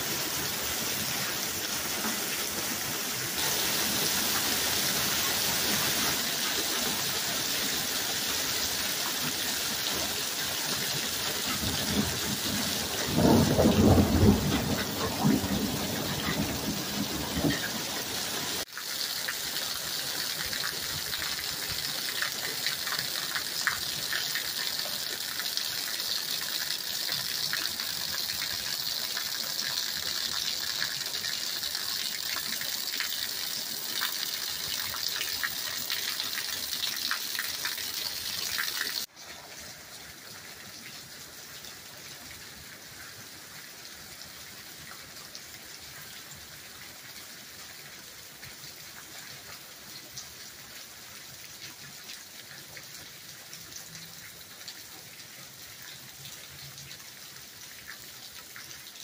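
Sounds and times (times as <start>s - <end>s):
rain falling on gravel: 0.0s - 59.0s
rainwater splashing on ground: 0.0s - 59.0s.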